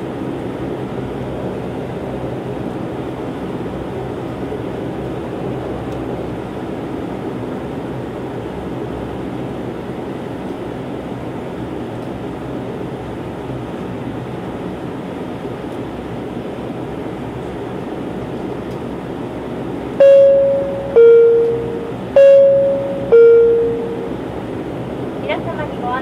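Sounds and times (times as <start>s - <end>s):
turboprop engine cabin drone: 0.0s - 26.0s
two-tone cabin chime: 20.0s - 24.2s.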